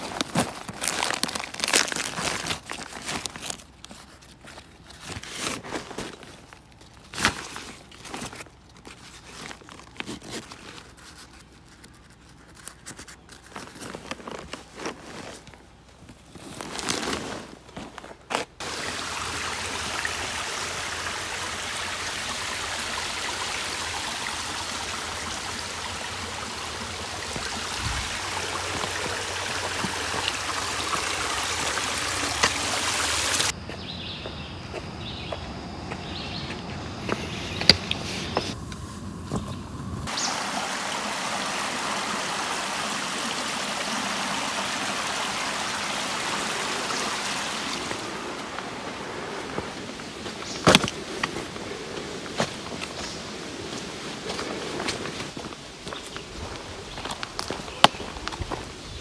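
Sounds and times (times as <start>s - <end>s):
creek running over rocks: 0.0s - 15.6s, 18.6s - 33.6s, 39.3s - 59.0s
backpack fabric rustling: 0.0s - 18.6s.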